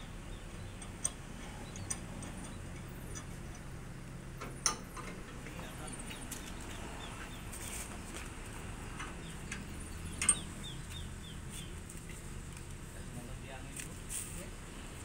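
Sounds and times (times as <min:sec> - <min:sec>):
small birds chirping: 0:00.0 - 0:04.3, 0:05.4 - 0:13.7.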